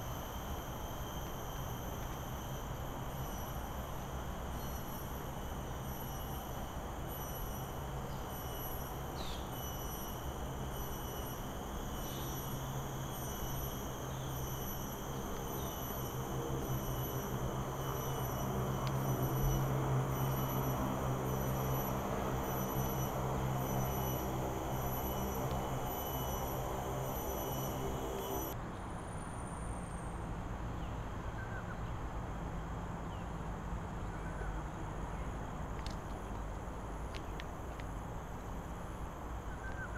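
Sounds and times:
insect chorus: 0:00.0 - 0:28.6, 0:31.4 - 0:39.9
faint bird chirps: 0:07.2 - 0:10.2.

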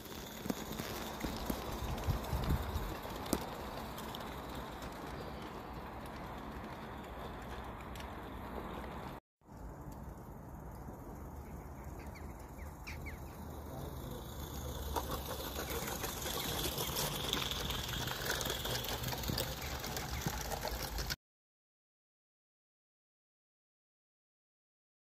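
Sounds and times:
model steam train clicking on track: 0:00.0 - 0:09.2, 0:12.0 - 0:21.2.

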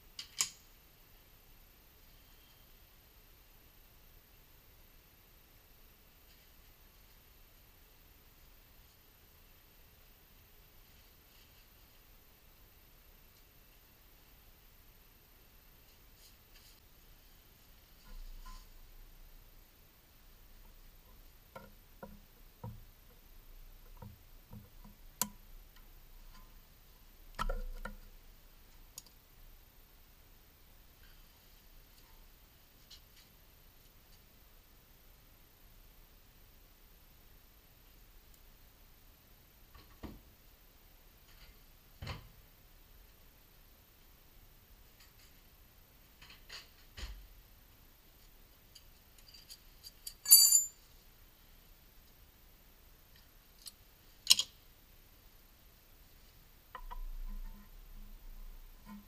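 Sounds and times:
light clicks and knocks of tools: 0:20.6 - 0:26.6, 0:53.1 - 0:54.6
small tool clicking on metal: 0:53.6 - 0:54.6.

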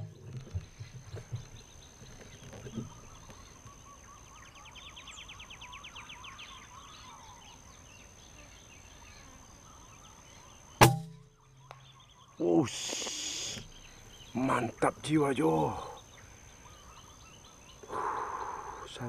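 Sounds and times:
faint birds: 0:00.0 - 0:19.0
insect ticking trill: 0:10.6 - 0:19.0
rifle shot: 0:10.8 - 0:11.2.

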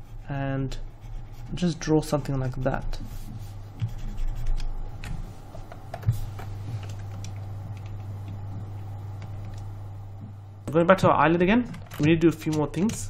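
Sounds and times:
low hum: 0:00.0 - 0:13.0
keyboard and mouse clicks: 0:11.0 - 0:13.0.

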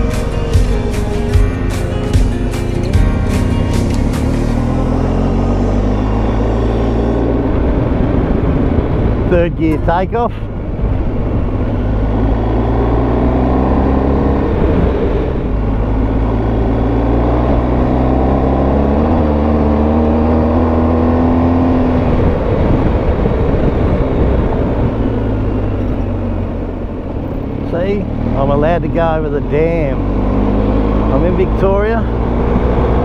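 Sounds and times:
motorcycle engine: 0:00.0 - 0:33.0
wind noise: 0:01.8 - 0:27.5.

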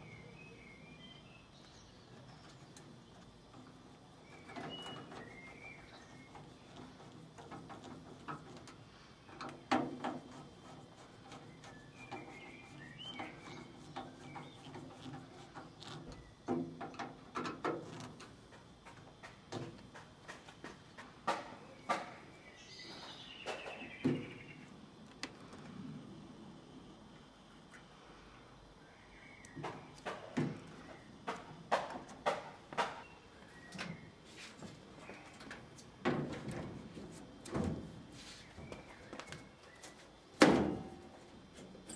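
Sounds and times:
bird chirping: 0:00.0 - 0:02.8, 0:04.2 - 0:06.8, 0:11.3 - 0:15.0.

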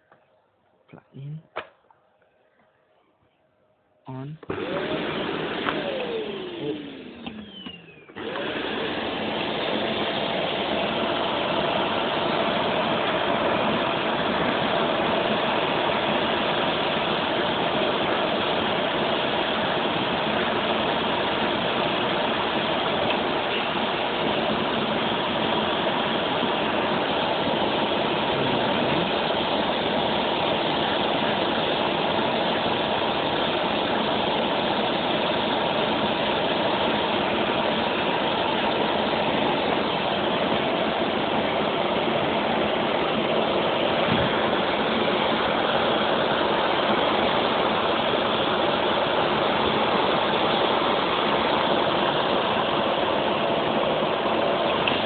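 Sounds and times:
vacuum cleaner running: 0:04.1 - 0:55.0.

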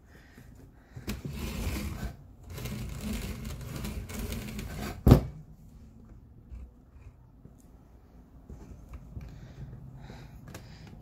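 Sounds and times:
leather lace rasping through holes: 0:01.3 - 0:05.2.

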